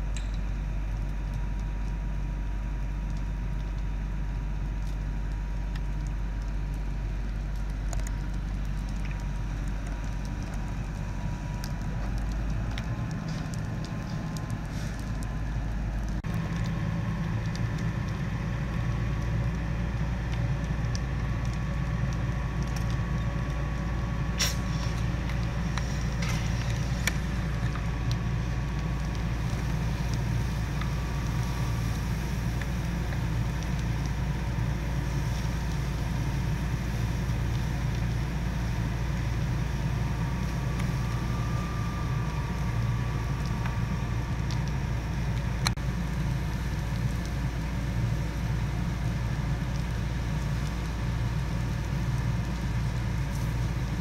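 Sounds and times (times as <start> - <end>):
diesel engine and pump rumbling: 0.0 - 54.0.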